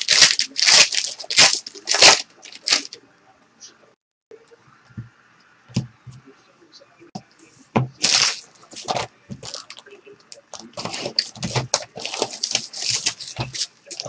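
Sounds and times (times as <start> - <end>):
plastic shrink-wrap crinkling and tearing: 0.0 - 3.0, 8.0 - 9.8, 10.5 - 14.0.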